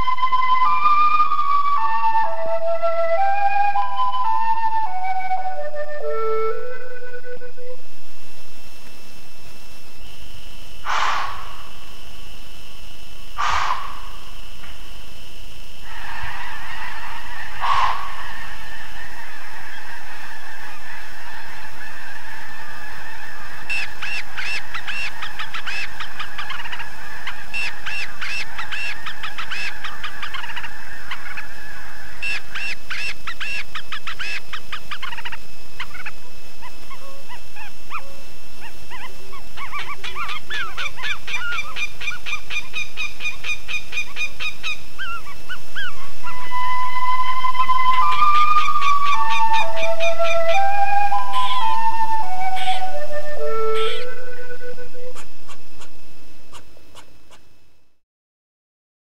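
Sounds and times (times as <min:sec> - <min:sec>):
geese honking: 0:10.9 - 0:11.9, 0:13.4 - 0:14.4, 0:15.8 - 0:57.4.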